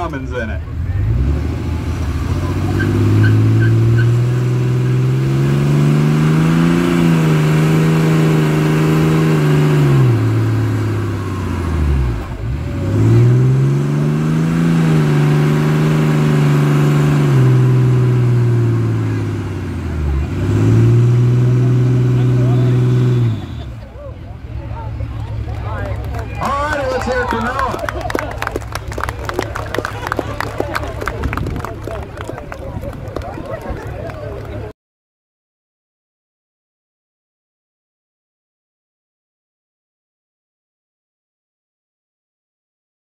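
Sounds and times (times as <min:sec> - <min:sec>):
diesel engine revving high: 0:00.0 - 0:33.3.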